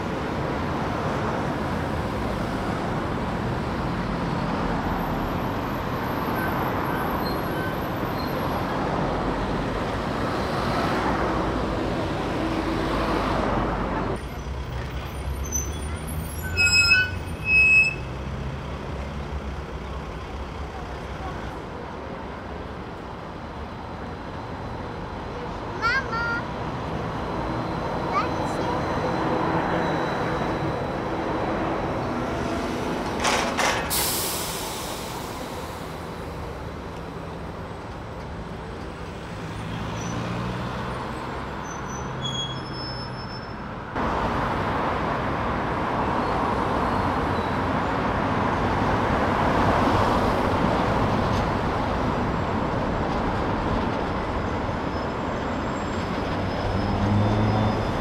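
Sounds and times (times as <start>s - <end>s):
trams and cars passing: 0.0s - 58.0s
trolleybus passing: 0.0s - 58.0s
trolleybus hiss: 33.7s - 36.7s.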